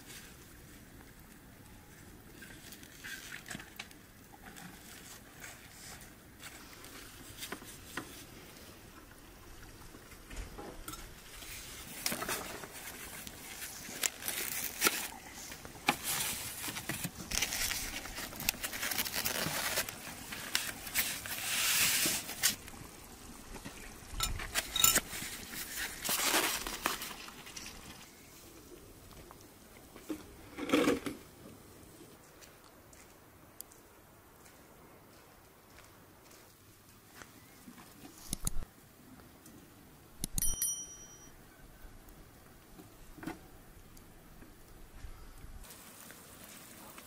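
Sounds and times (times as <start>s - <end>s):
styrofoam boxes rustling and scraping: 4.5s - 8.5s, 11.3s - 22.6s, 24.4s - 28.1s.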